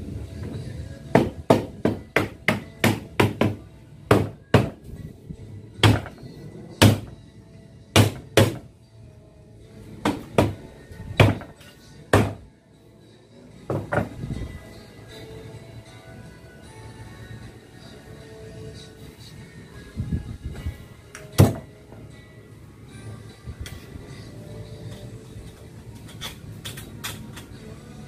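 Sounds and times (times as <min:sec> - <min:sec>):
hammer knocking wooden block: 0:01.2 - 0:04.8, 0:05.8 - 0:06.2, 0:08.0 - 0:08.6, 0:11.2 - 0:11.5, 0:12.1 - 0:12.4.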